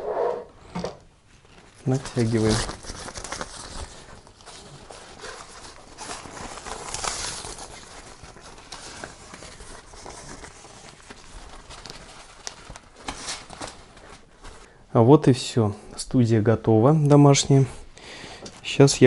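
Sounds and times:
diffuser cloth rustling: 1.1s - 14.8s.

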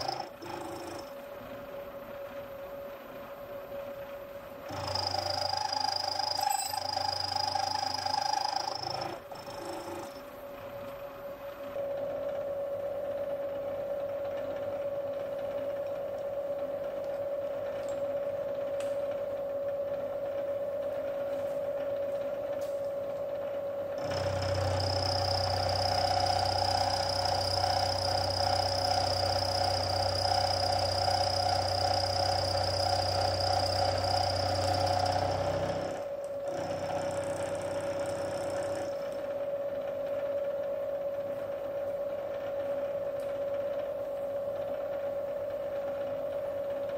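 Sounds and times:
milling machine humming: 0.0s - 46.9s
motor whining and rattling: 0.0s - 46.9s.

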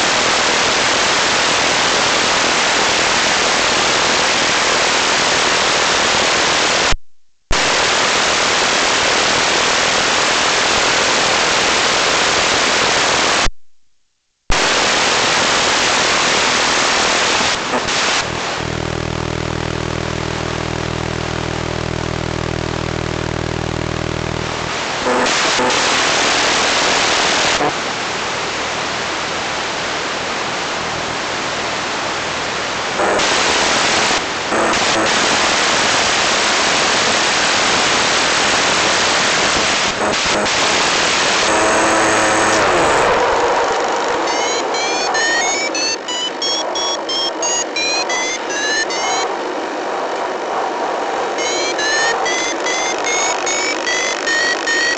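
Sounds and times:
loud static hiss: 0.0s - 13.6s, 14.5s - 54.9s
low buzz: 17.6s - 26.3s.

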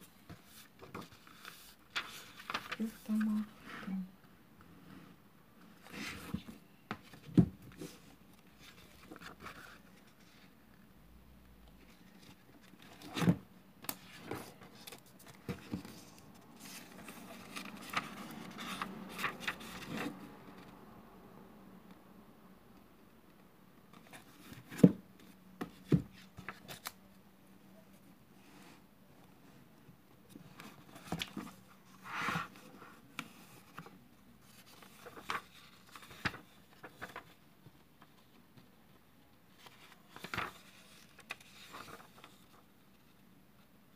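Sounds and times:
book pages flicking and rustling: 0.2s - 3.4s, 11.8s - 20.2s, 30.3s - 38.1s, 39.6s - 42.6s.

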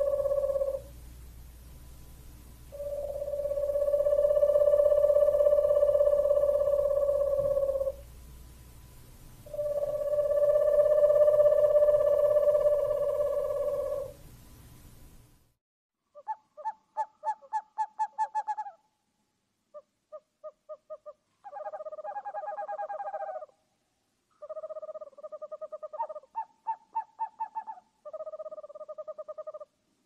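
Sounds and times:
owl trilled calls: 0.0s - 0.9s, 2.7s - 8.1s, 9.4s - 14.2s, 16.1s - 18.9s, 19.7s - 23.6s, 24.3s - 29.8s
owl hooting: 0.0s - 1.0s, 2.7s - 8.1s, 9.4s - 14.2s, 16.1s - 18.8s, 19.7s - 23.6s, 24.3s - 29.8s.

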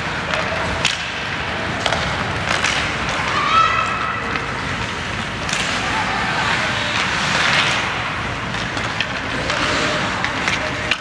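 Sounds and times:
hockey play on ice: 0.0s - 11.0s
skates scraping hiss: 0.0s - 11.0s
spectators' voices: 0.0s - 11.0s.

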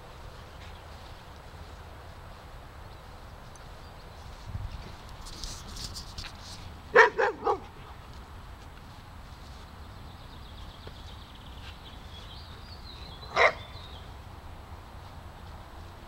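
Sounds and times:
dog barking: 6.9s - 7.8s, 13.3s - 13.8s.

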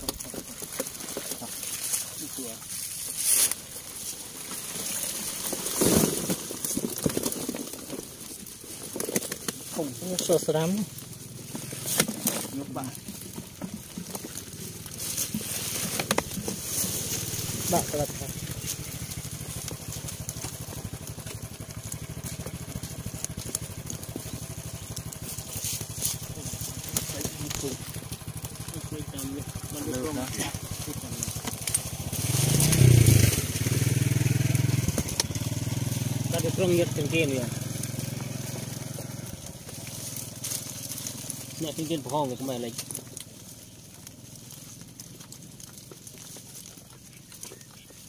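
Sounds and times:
fish flopping in a net: 0.0s - 9.7s
small engine running: 0.0s - 48.0s.

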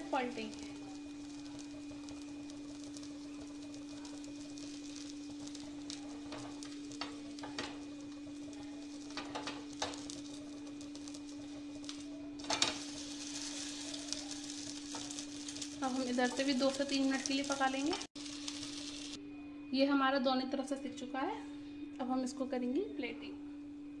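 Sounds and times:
frying hiss: 0.0s - 19.2s
steady low hum: 0.0s - 24.0s.

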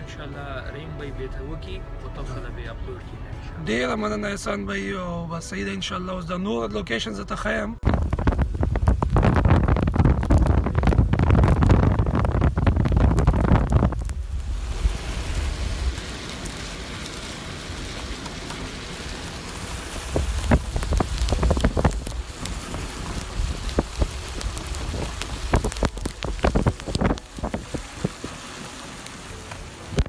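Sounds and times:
low road rumble: 0.0s - 30.0s
raindrops hitting close by: 7.8s - 30.0s
rain hissing on a car: 7.9s - 30.0s.

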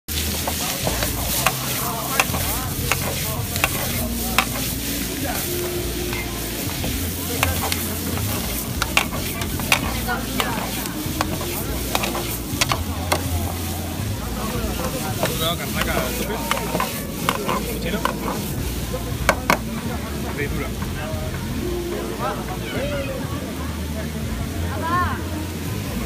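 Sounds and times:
greens sizzling in wok: 0.1s - 26.0s
metal ladle clinking on wok: 7.4s - 13.3s.

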